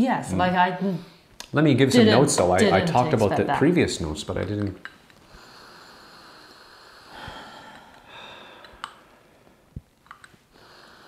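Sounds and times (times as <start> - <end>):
faint clicks: 8.6 - 9.0.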